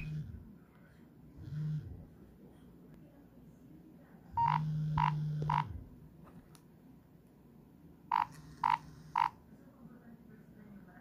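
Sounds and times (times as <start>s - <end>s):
phone vibration buzz: 0.0s - 0.3s, 4.4s - 5.8s, 8.1s - 9.4s
phone ringtone beeps: 4.4s - 5.7s, 8.1s - 9.3s.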